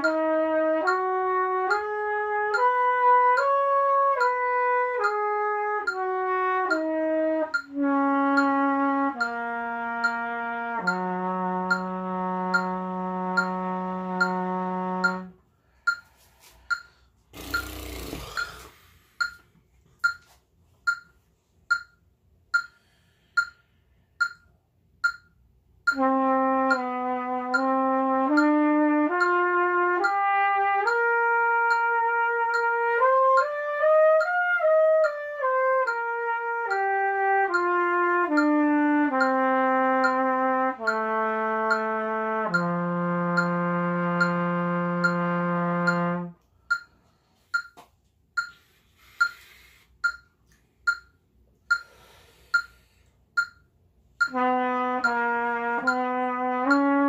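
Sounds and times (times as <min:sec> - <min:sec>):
trumpet playing: 0:00.0 - 0:15.4, 0:25.9 - 0:46.5, 0:54.2 - 0:57.0
metronome ticking: 0:00.0 - 0:57.0
breath in: 0:15.6 - 0:19.2, 0:48.5 - 0:50.0, 0:51.7 - 0:53.2.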